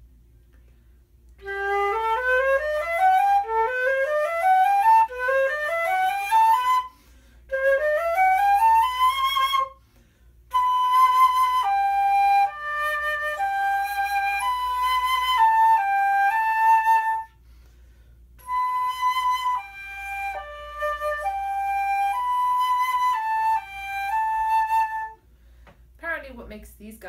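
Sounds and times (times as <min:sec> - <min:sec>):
flute melody held notes: 0:01.4 - 0:09.8, 0:10.5 - 0:17.4, 0:18.4 - 0:25.3
flute playing scale runs: 0:01.4 - 0:09.8
flute player breathing: 0:06.7 - 0:07.7, 0:09.6 - 0:10.6, 0:17.3 - 0:18.5, 0:25.2 - 0:25.9.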